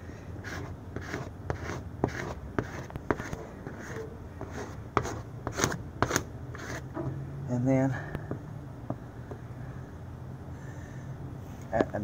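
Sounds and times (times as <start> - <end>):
squeegee scraping on glass: 0.4 - 7.1.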